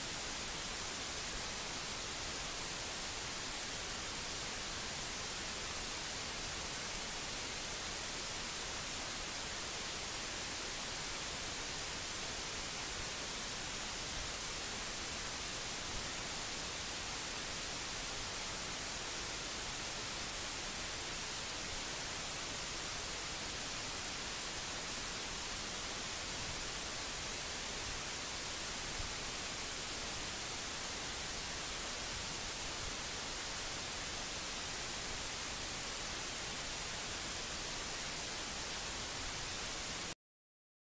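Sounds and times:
microphone hiss: 0.0 - 40.2.

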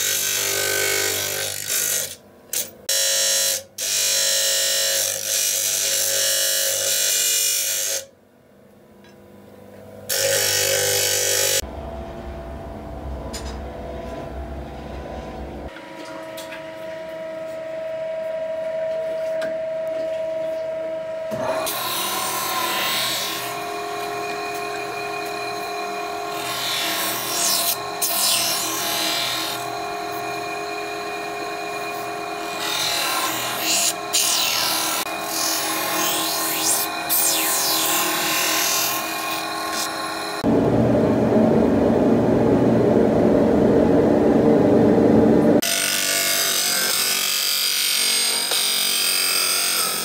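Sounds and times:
motor hum: 9.0 - 45.6
high grinder whine: 21.3 - 40.6.

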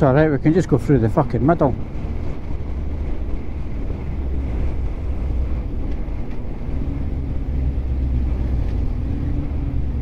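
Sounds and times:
wind rumble on microphone: 0.0 - 10.0.

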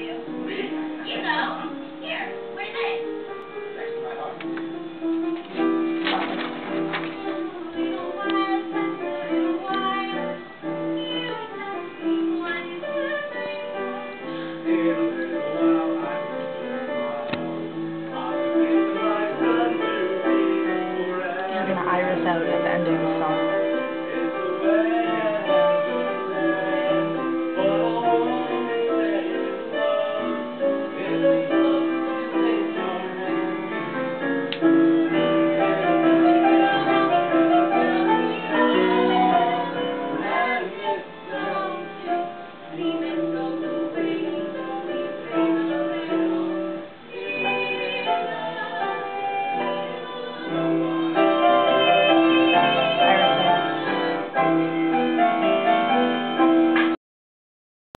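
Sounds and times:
woman singing: 7.1 - 16.2, 18.1 - 33.7, 35.1 - 54.4
band holding notes: 47.1 - 56.9.

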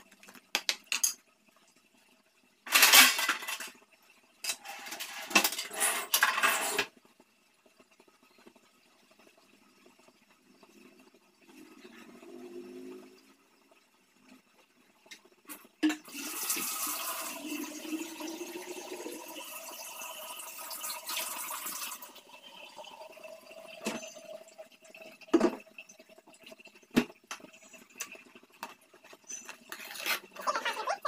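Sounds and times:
water running: 8.5 - 31.0.

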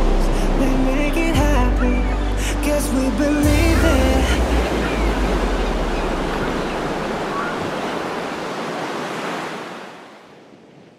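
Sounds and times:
low rumble: 0.0 - 7.3
rushing wash of noise: 0.0 - 9.7.

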